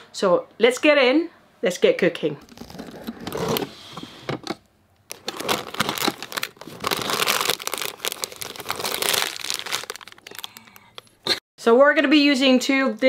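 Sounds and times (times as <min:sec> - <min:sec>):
foil sachets crinkling: 0:05.1 - 0:11.2.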